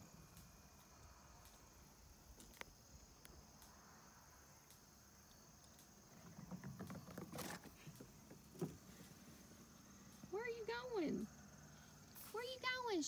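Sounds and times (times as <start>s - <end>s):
crickets chirring: 0.0s - 13.0s
scuffing on wooden deck: 6.1s - 9.4s.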